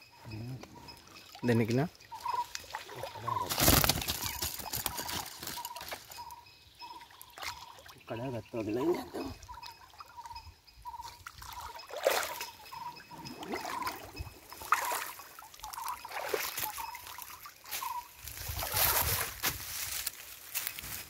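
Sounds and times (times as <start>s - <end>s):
water splashing and trickling: 0.1s - 21.0s
water dripping and sloshing: 0.9s - 3.7s, 11.0s - 17.8s.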